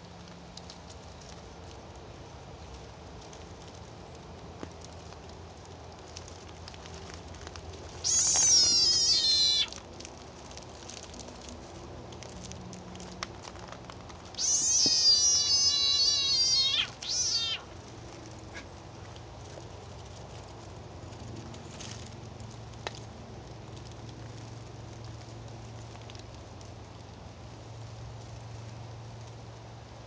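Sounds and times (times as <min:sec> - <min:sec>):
frog screaming: 0:07.9 - 0:09.8, 0:14.3 - 0:17.8.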